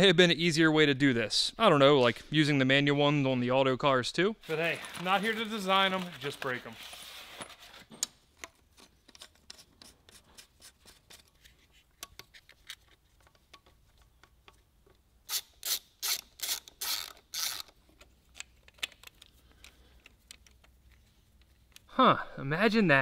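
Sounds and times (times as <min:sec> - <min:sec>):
ratchet wrench clicking: 0:15.3 - 0:17.8.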